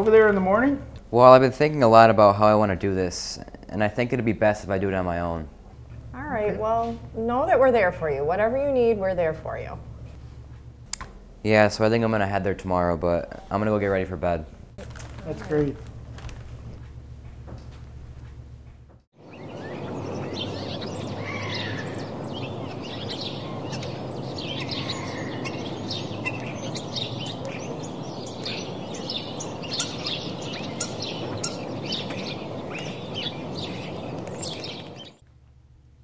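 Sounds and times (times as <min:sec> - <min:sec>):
background hiss: 0:00.0 - 0:18.8
small birds chirping: 0:19.2 - 0:35.2.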